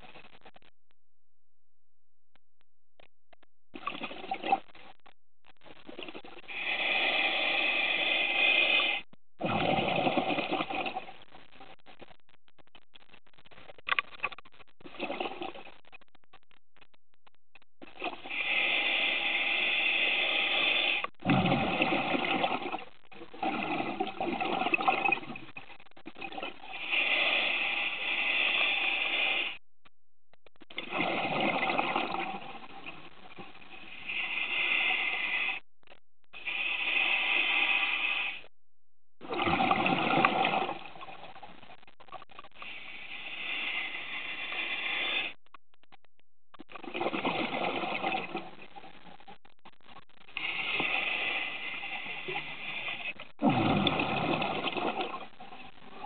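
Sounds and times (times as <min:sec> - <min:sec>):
exhaled bubbles gushing: 0:03.8 - 0:04.7, 0:09.4 - 0:11.2, 0:14.8 - 0:15.7, 0:21.2 - 0:26.8, 0:30.8 - 0:33.5, 0:39.2 - 0:41.4, 0:46.7 - 0:48.9, 0:53.4 - 0:56.0
diver breathing through regulator: 0:06.5 - 0:10.8, 0:18.2 - 0:21.1, 0:26.6 - 0:29.6, 0:33.8 - 0:35.6, 0:36.3 - 0:38.5, 0:42.6 - 0:45.4, 0:50.4 - 0:54.5.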